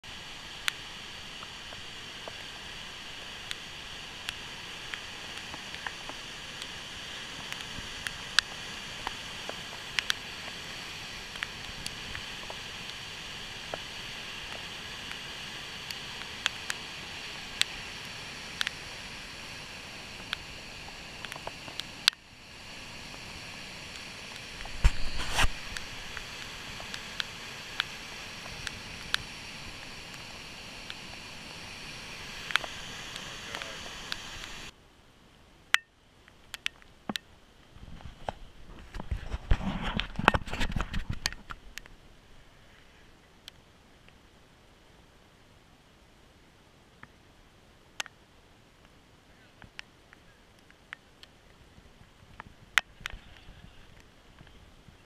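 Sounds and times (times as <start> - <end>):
water rushing over spillway: 0.0 - 34.8.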